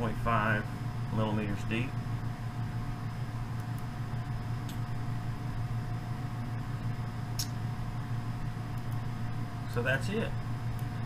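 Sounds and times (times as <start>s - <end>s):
steady low hum: 0.0s - 11.0s
computer mouse clicks: 8.7s - 9.0s.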